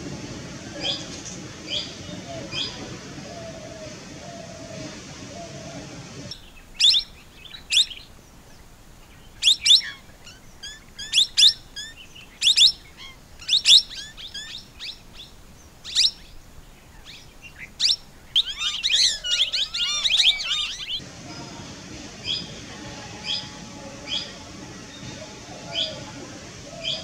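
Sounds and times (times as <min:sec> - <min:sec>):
parakeet calling: 0:09.4 - 0:15.2, 0:15.8 - 0:16.3, 0:17.0 - 0:21.0.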